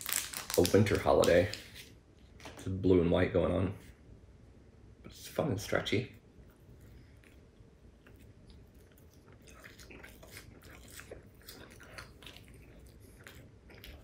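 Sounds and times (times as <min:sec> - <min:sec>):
person chewing with wet mouth clicks: 0:07.2 - 0:14.0.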